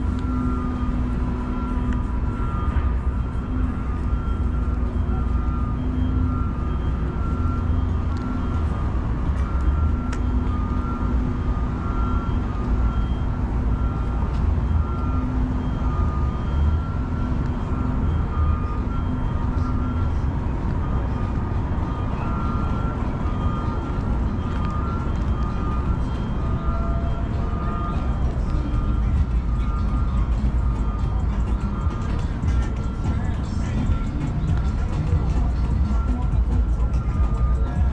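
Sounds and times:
faint electronic beep: 0.0 - 37.9
street traffic rumbling: 0.0 - 37.9.

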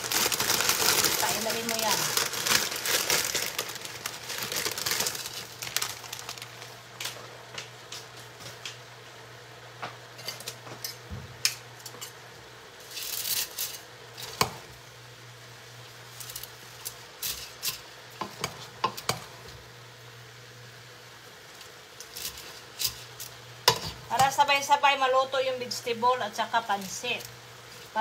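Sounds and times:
dry noodles rustling: 0.0 - 7.2
plastic bag crinkling: 0.0 - 7.2.

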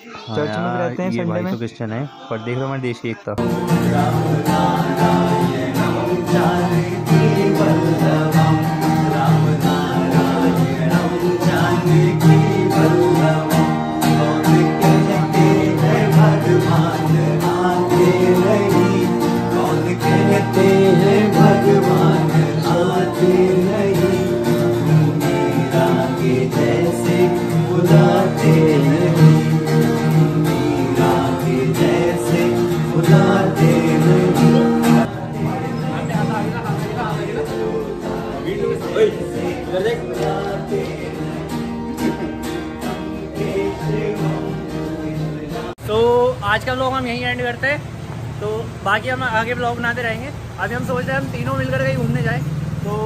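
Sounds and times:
person singing: 0.0 - 45.8
acoustic guitar playing: 0.0 - 53.0.

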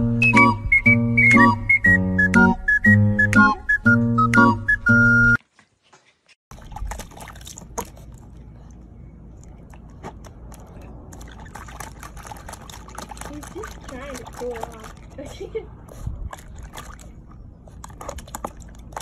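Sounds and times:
plucked whistled tune: 0.0 - 5.4
water splashing and dripping: 6.5 - 19.0.

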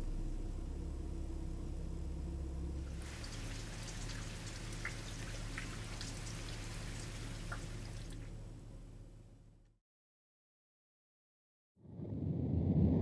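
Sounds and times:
low steady hum: 0.0 - 9.8
rain pattering on water: 2.9 - 8.4.

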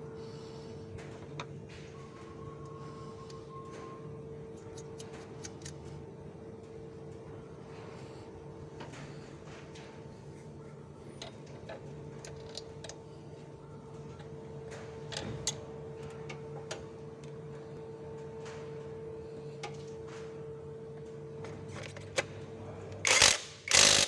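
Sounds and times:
steady low hum: 0.0 - 24.0
ratchet wrench clicking: 23.1 - 24.0.

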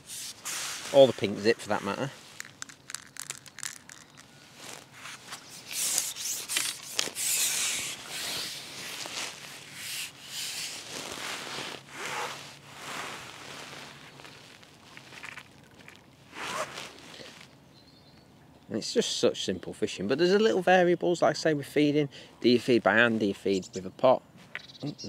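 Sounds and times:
rubbing and rustling on microphone: 0.0 - 17.6.

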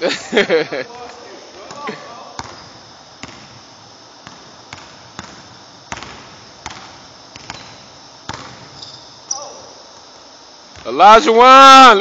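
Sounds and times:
basketball bouncing on hardwood floor: 2.4 - 3.6, 4.2 - 8.8.

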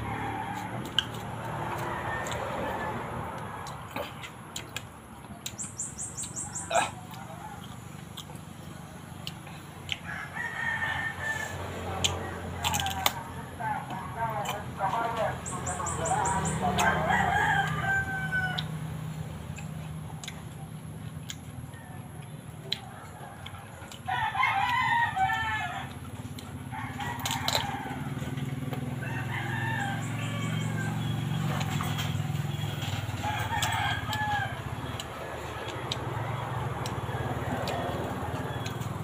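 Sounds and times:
rooster crowing: 0.0 - 3.4, 10.0 - 13.9, 15.5 - 19.0, 22.8 - 39.0
crunching bites of mango: 11.8 - 14.6.

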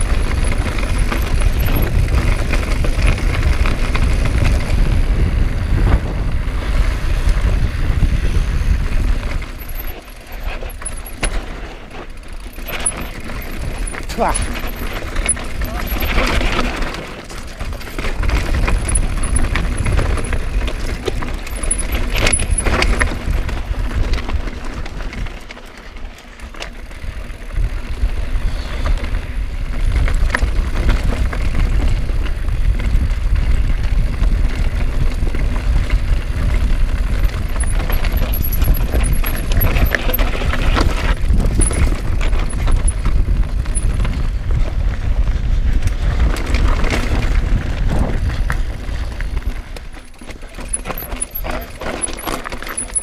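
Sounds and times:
wind buffeting microphone: 0.0 - 11.3, 26.8 - 50.0
mountain bike rattling: 0.0 - 53.0.

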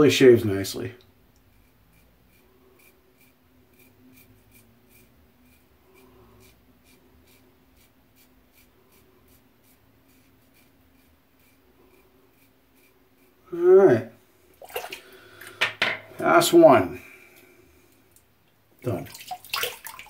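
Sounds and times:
razor scraping stubble: 1.5 - 13.5.

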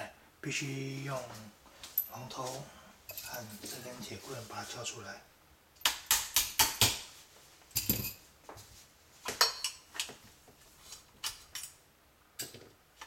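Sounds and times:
metal parts clicking and clinking: 3.1 - 3.8.

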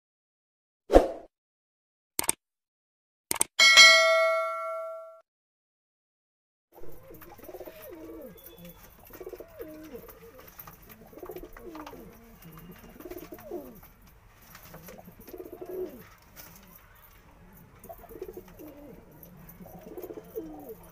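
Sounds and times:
pigeons cooing: 6.8 - 20.9.

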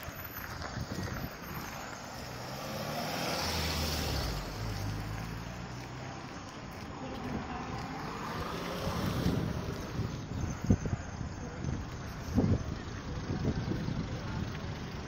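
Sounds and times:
wind buffeting microphone: 0.1 - 1.7, 6.8 - 15.0
car driving past: 0.1 - 10.6.

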